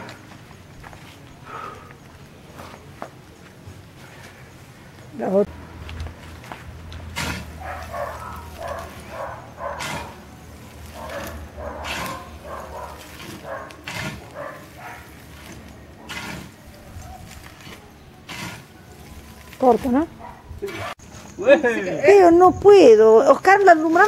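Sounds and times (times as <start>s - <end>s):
embers rattling: 5.8s - 24.0s
metal shovel scraping embers: 6.2s - 21.4s.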